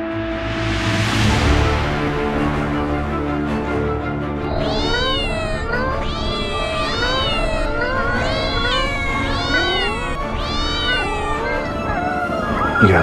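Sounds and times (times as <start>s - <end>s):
cats meowing: 4.4s - 13.0s.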